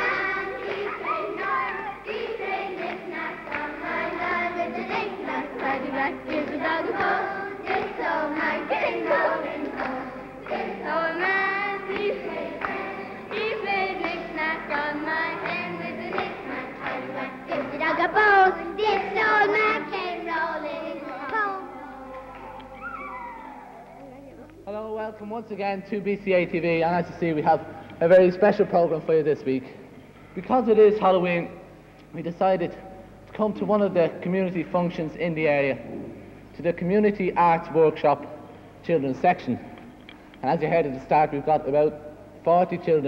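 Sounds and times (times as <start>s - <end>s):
children singing in chorus: 0.0s - 23.9s.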